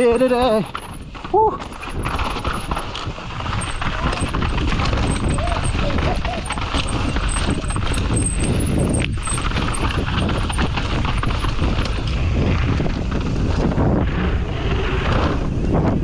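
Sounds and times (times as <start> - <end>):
bike rattling and knocking: 0.0 - 14.0
tyres rumbling on dirt and rock: 0.0 - 16.0.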